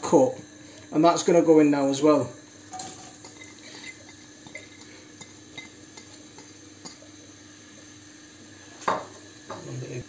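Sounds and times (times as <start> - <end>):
onions sizzling in oil: 0.1 - 10.0.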